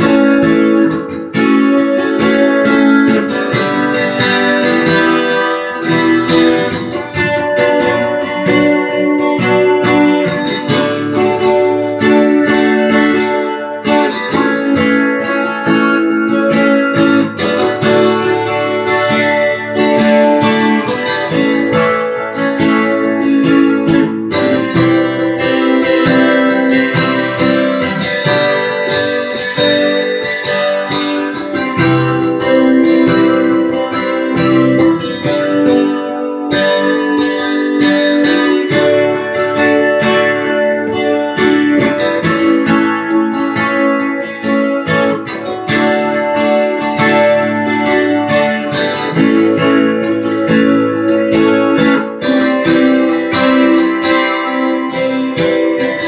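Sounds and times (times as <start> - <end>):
twelve-string acoustic guitar: 0.0 - 56.0.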